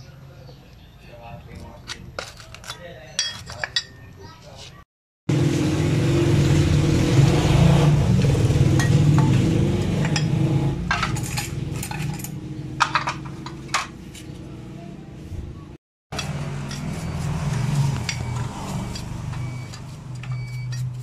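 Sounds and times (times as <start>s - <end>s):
metal parts clinking against pan: 1.9s - 4.0s, 10.9s - 13.9s.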